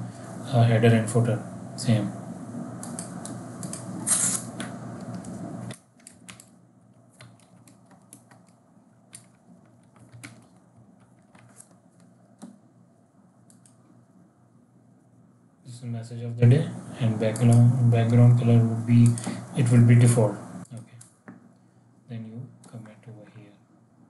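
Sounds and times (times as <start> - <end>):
steady hum and hiss: 0.0 - 24.0
keyboard typing: 2.8 - 12.6.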